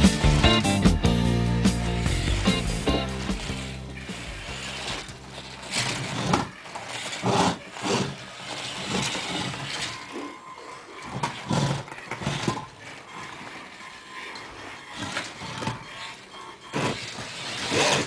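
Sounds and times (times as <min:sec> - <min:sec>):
small electric motor whirring: 0:02.0 - 0:18.0.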